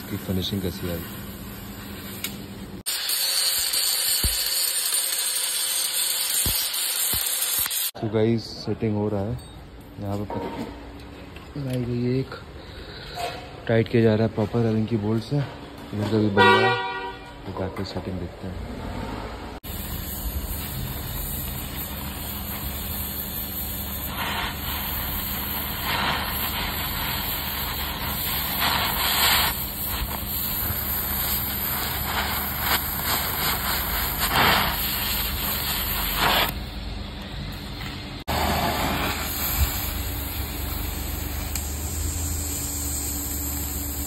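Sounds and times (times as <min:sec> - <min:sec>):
welding torch flame hissing: 0:00.0 - 0:08.0, 0:19.6 - 0:44.0.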